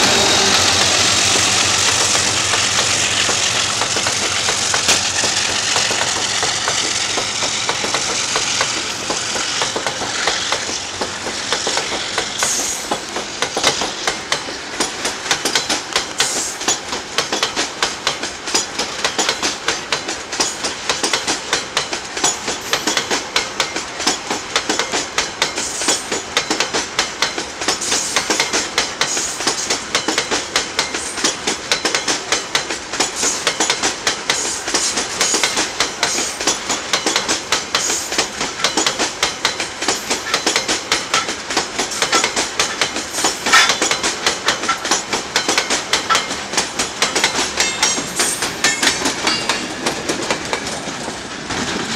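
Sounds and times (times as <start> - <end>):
train rolling rumble: 0.0 - 51.9
wheels clacking over rail joints: 0.0 - 51.9.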